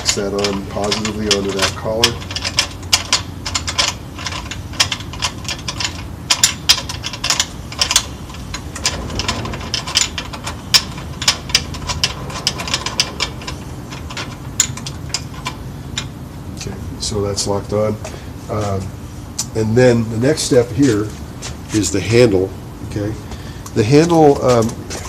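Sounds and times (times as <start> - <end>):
clicks and rattles of parts: 0.0 - 16.7, 23.3 - 25.0.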